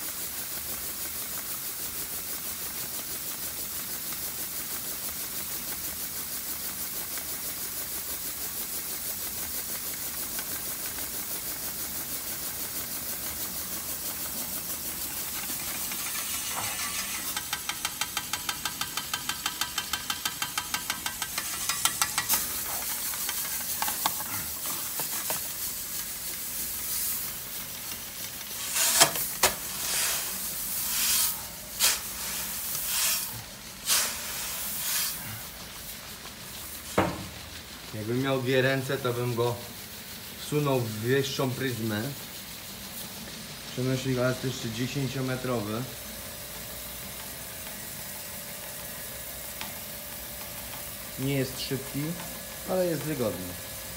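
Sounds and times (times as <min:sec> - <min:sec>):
grain hissing through auger: 0:00.0 - 0:53.9
regular ticking: 0:09.8 - 0:25.0
sharp knocks and rustles: 0:11.8 - 0:26.1, 0:27.9 - 0:29.7, 0:36.8 - 0:37.7.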